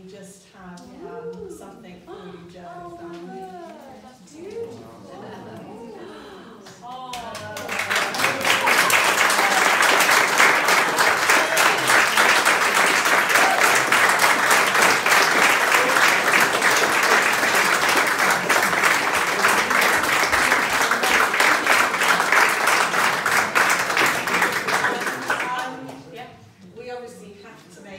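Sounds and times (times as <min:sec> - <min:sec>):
crowd applauding: 0:06.9 - 0:26.0.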